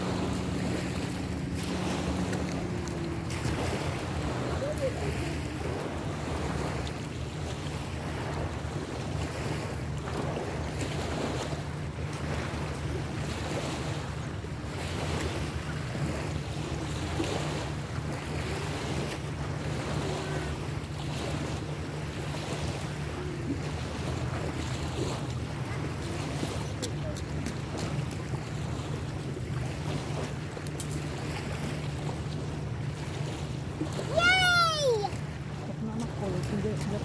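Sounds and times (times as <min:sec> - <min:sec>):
steady low hum: 0:00.0 - 0:10.5.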